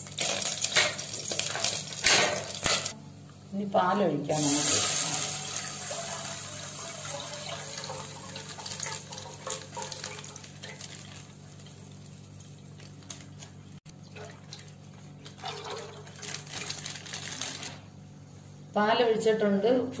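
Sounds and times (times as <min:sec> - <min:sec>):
milk pouring into pot: 0:04.4 - 0:13.2
plastic packet crinkling: 0:15.2 - 0:17.8.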